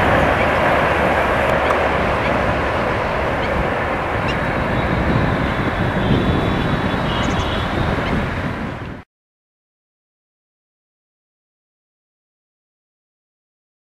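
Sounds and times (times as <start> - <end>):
train wheels rumbling on rails: 0.0 - 9.0.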